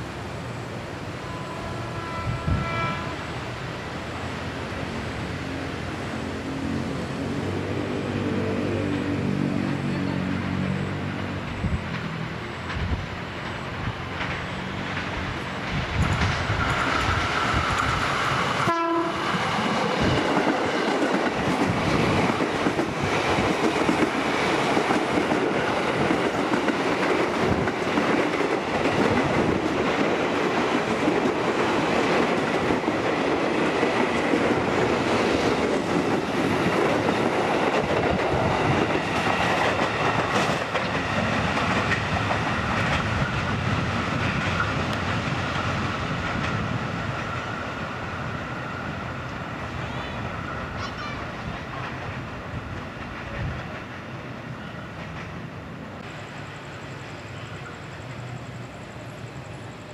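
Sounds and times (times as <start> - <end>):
approaching train drone: 0.0 - 59.9
train horn: 1.1 - 3.3, 18.6 - 19.4
train wheels rumbling and clattering: 4.2 - 59.9.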